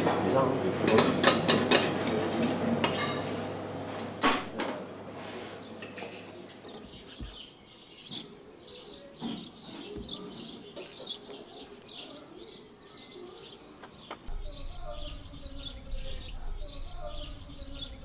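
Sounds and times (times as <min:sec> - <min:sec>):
birds chirping: 0:05.5 - 0:18.0
low hum: 0:14.3 - 0:18.0.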